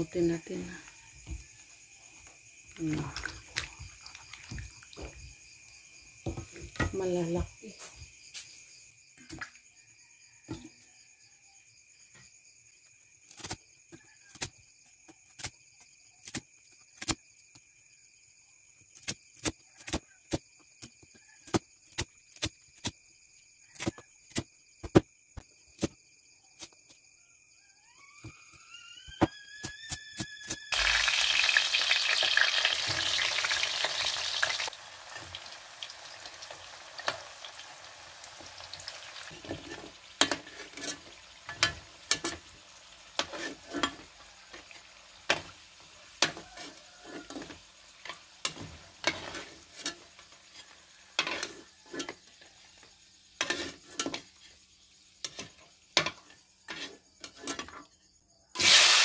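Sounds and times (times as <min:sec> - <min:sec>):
vegetables frying in oil: 0:02.4 - 0:07.6, 0:30.7 - 0:57.6, 0:58.6 - 0:59.0
oil popping and crackling: 0:02.8 - 0:05.2, 0:30.7 - 0:46.6.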